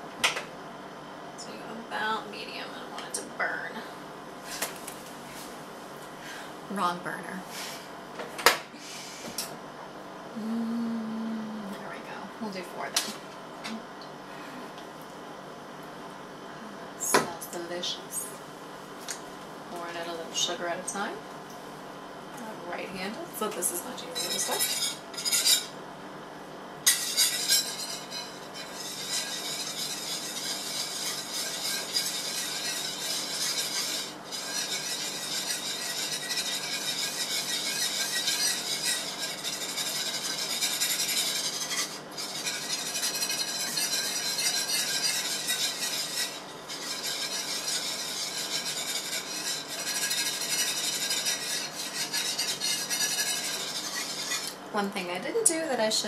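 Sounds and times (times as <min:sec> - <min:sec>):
whisk scratching a pan: 0:22.8 - 0:25.8, 0:26.9 - 0:54.6.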